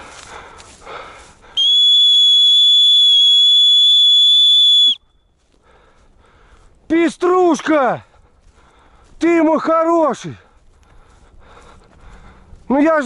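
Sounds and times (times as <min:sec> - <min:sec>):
dog whistle blast: 0:01.6 - 0:05.0.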